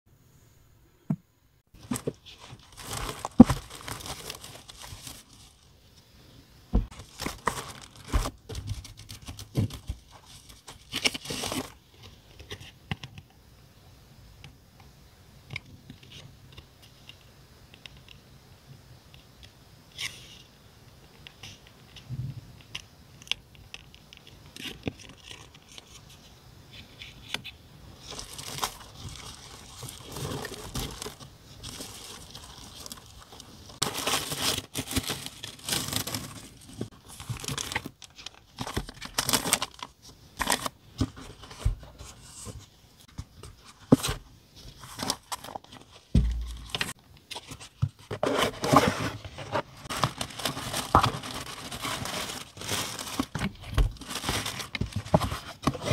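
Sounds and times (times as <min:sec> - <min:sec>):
packaging rustling and tearing: 0:01.8 - 0:05.7, 0:06.8 - 0:11.8, 0:28.0 - 0:42.6, 0:43.5 - 0:55.9.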